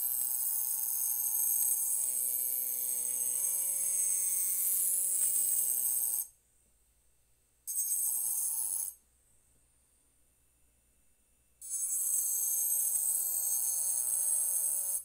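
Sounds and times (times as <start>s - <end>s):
engraving tool grinding glass: 0.0s - 6.3s, 11.6s - 15.0s.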